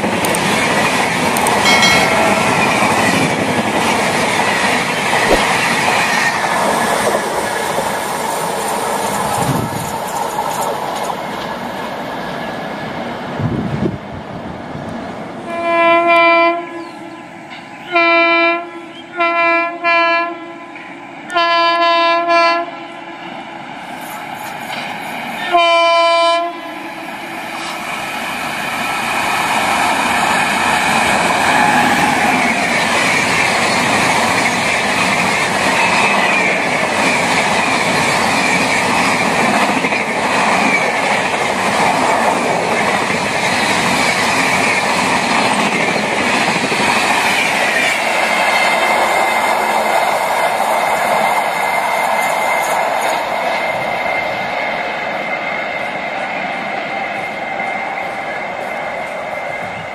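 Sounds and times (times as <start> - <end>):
train rumble and clatter: 0.0 - 18.3, 20.8 - 59.9
locomotive air horn blasts: 15.5 - 17.2, 17.9 - 23.1, 25.4 - 26.8.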